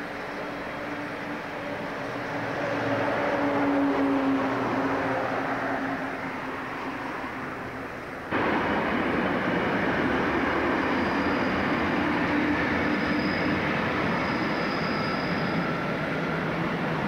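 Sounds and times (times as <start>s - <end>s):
train wheels rumbling: 8.3s - 17.0s
faint high wheel squeal: 10.6s - 17.0s.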